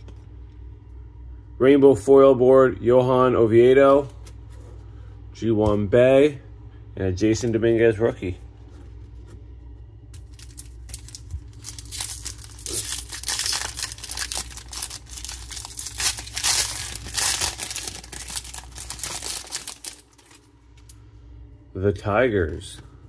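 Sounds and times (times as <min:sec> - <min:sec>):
card pack wrapper crinkling: 0:10.2 - 0:20.5.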